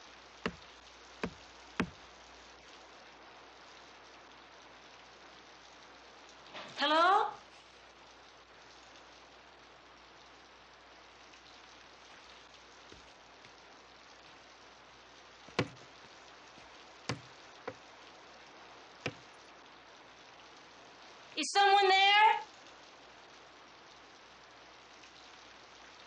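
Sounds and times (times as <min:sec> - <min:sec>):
steady low hiss: 0:00.0 - 0:26.0
sharp knocks: 0:01.2 - 0:02.0, 0:15.5 - 0:15.9, 0:17.1 - 0:17.8.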